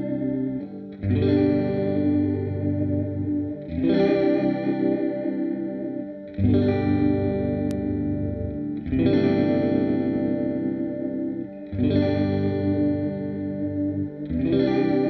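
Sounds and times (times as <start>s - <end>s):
electric guitar chords ringing: 0.0s - 15.0s
small click: 7.6s - 7.9s.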